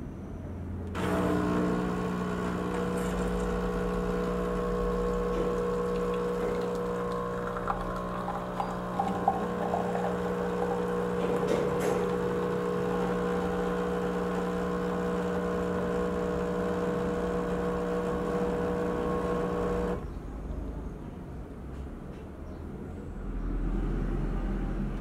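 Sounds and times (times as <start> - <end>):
coffee machine pump humming: 1.0 - 20.0.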